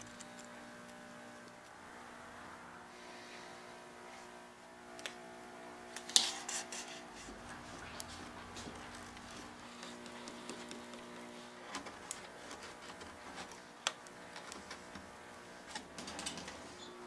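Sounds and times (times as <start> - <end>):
faint background hum: 0.0 - 17.0
hands working with tape: 5.9 - 16.9.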